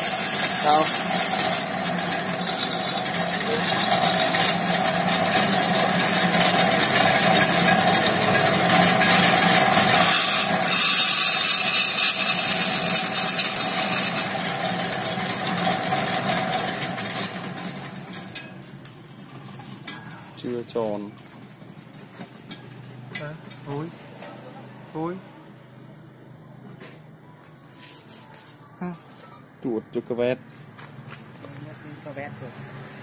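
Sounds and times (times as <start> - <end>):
turning tool scraping wood: 0.0 - 14.4
wood lathe humming: 0.0 - 18.0.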